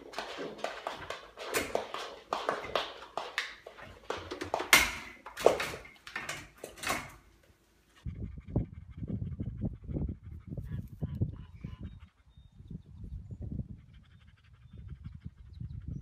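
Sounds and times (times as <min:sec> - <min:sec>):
metal gate rattling: 0:03.9 - 0:07.3.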